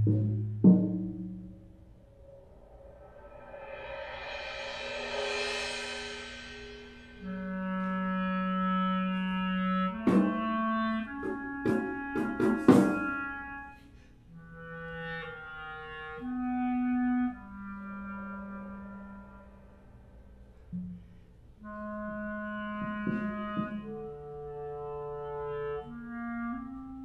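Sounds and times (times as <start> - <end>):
cymbal wash: 2.4 - 7.3
sharp drum and cymbal hits: 3.6 - 7.2, 11.2 - 13.0
clarinet holding long notes: 7.2 - 20.0, 20.6 - 27.0.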